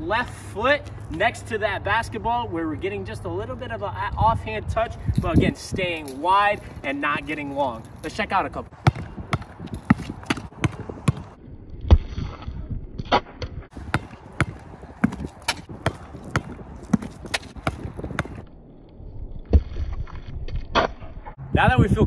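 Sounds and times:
basketball bouncing on concrete: 8.7s - 12.0s, 13.7s - 18.4s.

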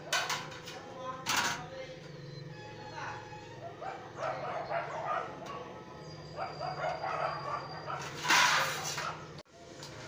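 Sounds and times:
sheet metal scraping across table: 8.0s - 9.2s.

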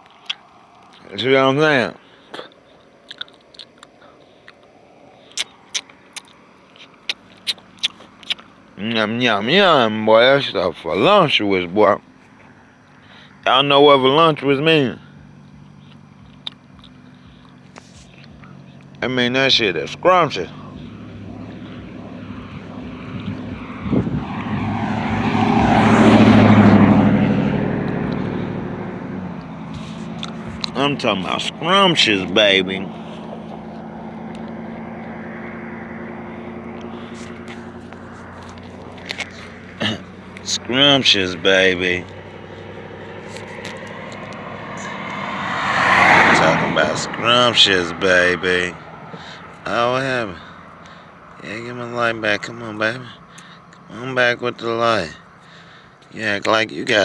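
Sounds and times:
sharp clicks and crunches: 0.0s - 1.1s, 2.3s - 8.5s, 15.8s - 19.0s, 36.8s - 40.5s, 43.2s - 44.4s
vehicle engine passing by: 0.0s - 57.0s.

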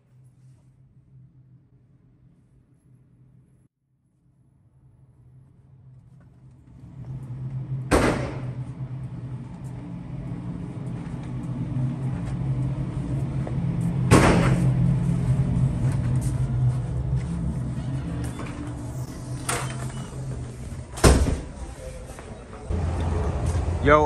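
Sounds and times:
steady low hum: 0.0s - 3.7s, 4.4s - 24.0s
loud sharp bangs: 7.8s - 8.7s, 14.0s - 14.9s.

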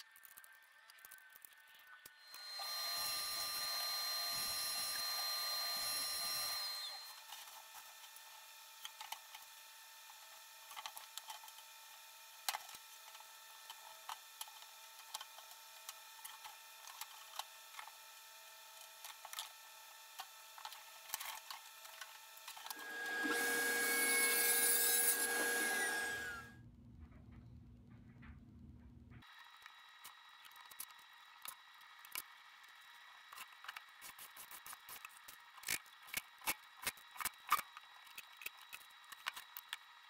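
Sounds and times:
power tool running: 2.2s - 7.4s, 22.4s - 26.5s.

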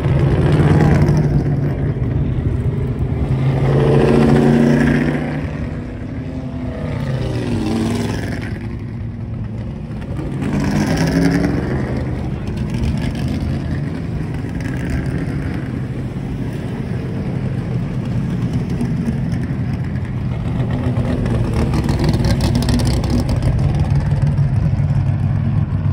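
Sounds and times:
race car engines running: 0.0s - 25.9s.

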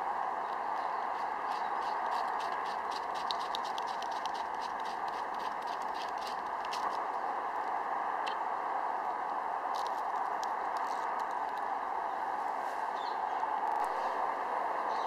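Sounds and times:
steady hiss: 0.0s - 15.0s
knife scraping bark: 1.0s - 7.0s.

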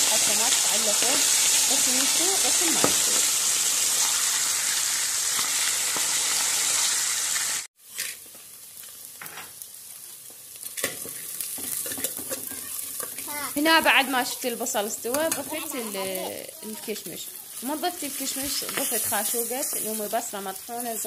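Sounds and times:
fish deep-frying in hot oil: 0.0s - 21.0s
spoon stirring in a pot: 10.8s - 13.9s, 18.1s - 20.0s.

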